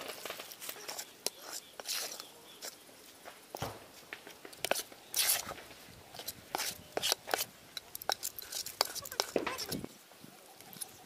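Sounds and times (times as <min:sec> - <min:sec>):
metal spoon scraping a pot: 0:06.1 - 0:09.8.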